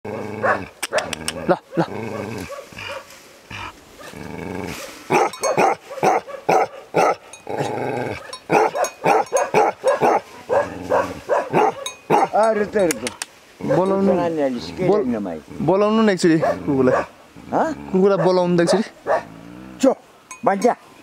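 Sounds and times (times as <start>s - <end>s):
dog barking: 0.1s - 3.1s, 4.8s - 7.2s, 8.2s - 12.4s, 13.6s - 14.2s, 16.4s - 17.2s, 18.1s - 19.3s
dog drawn-out calls: 0.1s - 4.2s, 4.8s - 7.3s, 8.1s - 12.4s, 18.2s - 19.6s.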